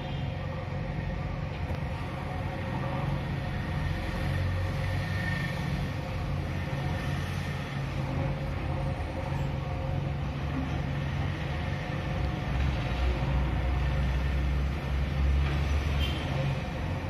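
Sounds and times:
diesel engine running under load: 0.0 - 17.0.

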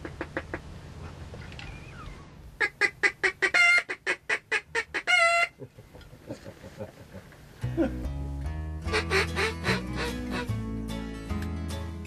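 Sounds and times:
waterfowl call nasal notes: 2.6 - 5.6.

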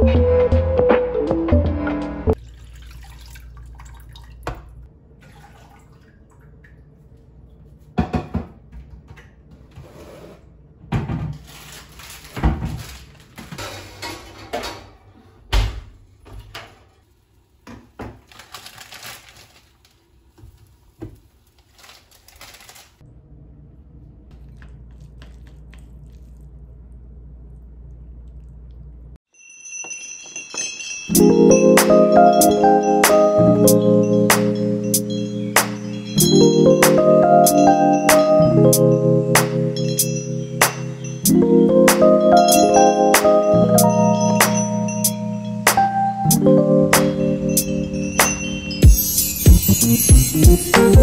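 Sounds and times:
water-like noise: 2.4 - 7.2
pot and utensils clinking: 29.4 - 33.2.

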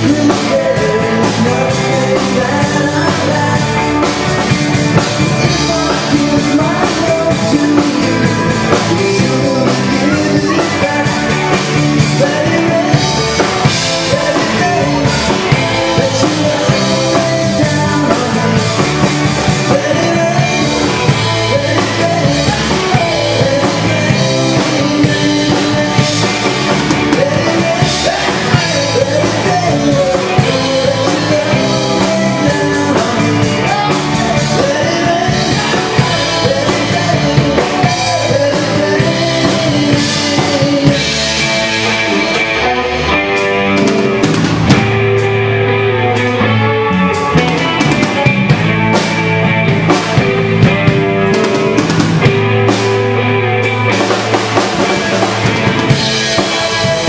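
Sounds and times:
man singing: 0.0 - 44.2, 45.7 - 57.0
bass guitar: 0.0 - 57.0
drum kit: 0.0 - 57.0
electric guitars: 0.0 - 57.0.

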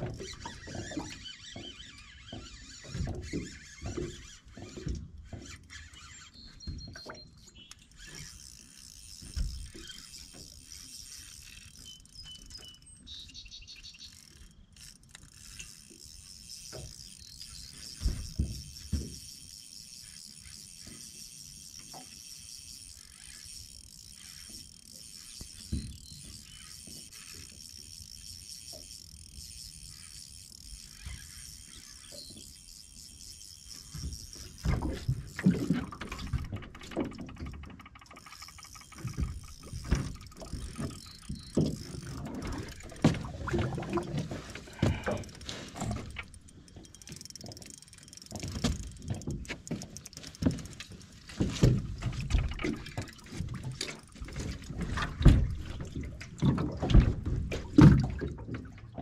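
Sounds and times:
water splashing: 15.8 - 59.0.

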